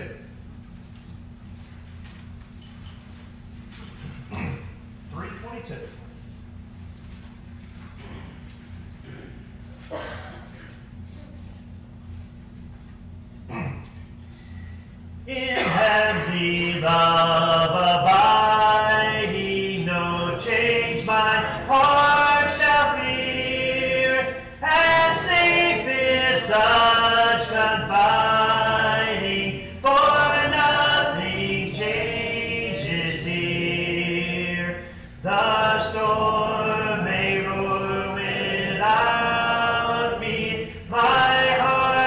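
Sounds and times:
congregation singing a hymn: 0:15.3 - 0:42.0.

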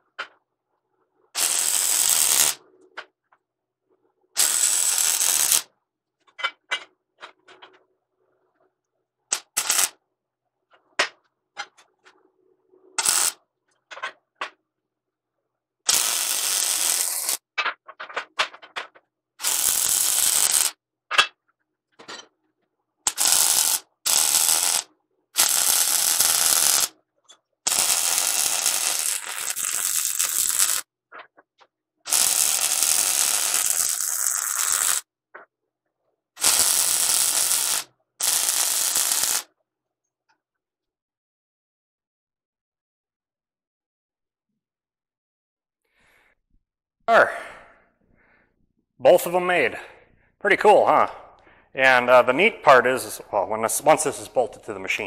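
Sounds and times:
welder crackling: 0:01.4 - 0:02.6, 0:04.4 - 0:05.7, 0:09.3 - 0:10.0, 0:13.0 - 0:13.4, 0:15.9 - 0:17.5, 0:19.4 - 0:20.8, 0:23.1 - 0:26.9, 0:27.7 - 0:30.9, 0:32.1 - 0:35.0, 0:36.4 - 0:39.5.

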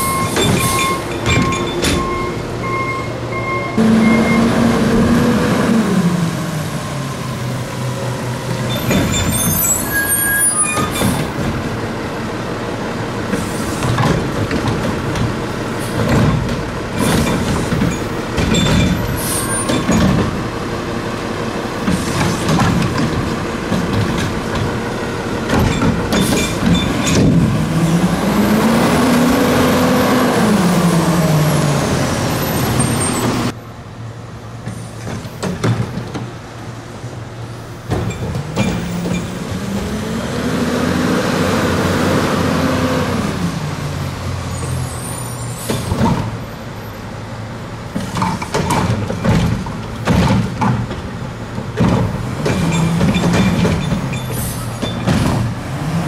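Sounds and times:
garbage truck engine revving: 0:03.3 - 0:09.8, 0:12.7 - 0:33.6, 0:38.4 - 0:44.4, 0:48.8 - 0:56.0
metallic clanks and bangs: 0:25.5 - 0:27.6, 0:48.0 - 0:55.6.

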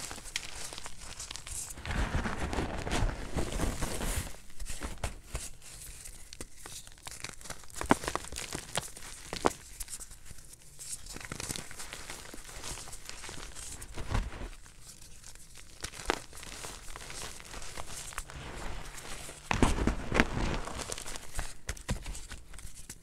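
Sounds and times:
hands crushing chalk: 0:05.0 - 0:10.0, 0:15.7 - 0:23.0.

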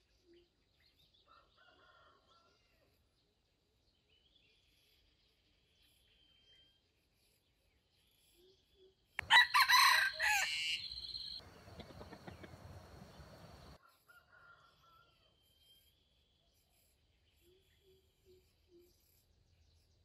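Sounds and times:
faint noise: 0:09.2 - 0:13.8
rooster crowing: 0:09.2 - 0:15.2.

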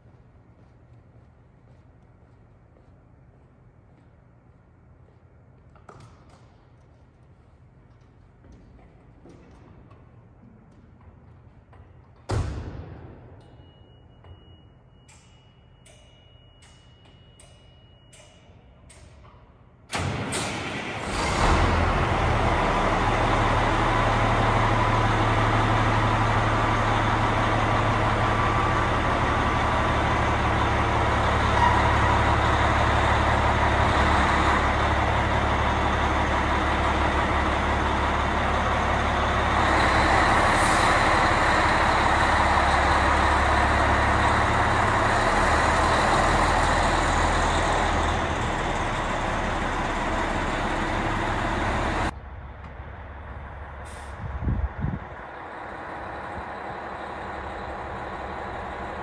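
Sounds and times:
diesel truck engine running: 0:20.0 - 0:59.0.

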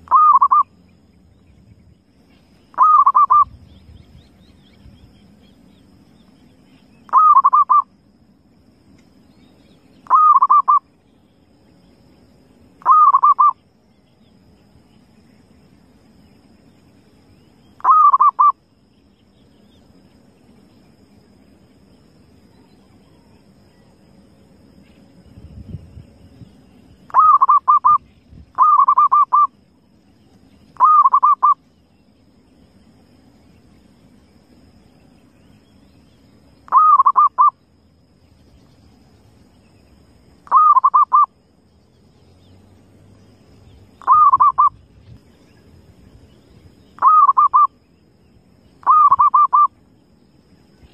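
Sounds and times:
dove cooing: 0:00.0 - 0:00.7, 0:02.8 - 0:03.4, 0:07.1 - 0:07.8, 0:10.1 - 0:10.8, 0:12.8 - 0:13.6, 0:17.8 - 0:18.5, 0:27.1 - 0:28.0, 0:28.6 - 0:29.5, 0:30.8 - 0:31.6, 0:36.7 - 0:37.5, 0:40.5 - 0:41.3, 0:44.0 - 0:44.8, 0:47.0 - 0:47.7, 0:48.8 - 0:49.7.

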